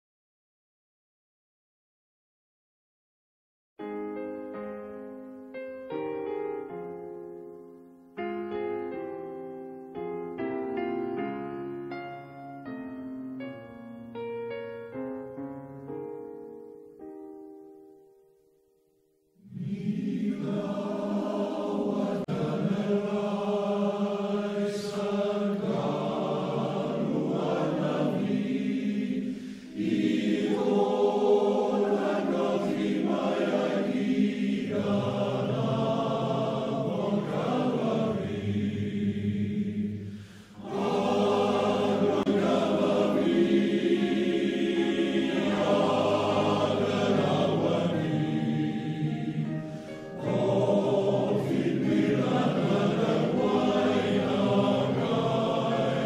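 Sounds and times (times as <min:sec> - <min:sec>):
male voice choir singing: 0:19.5 - 0:56.0.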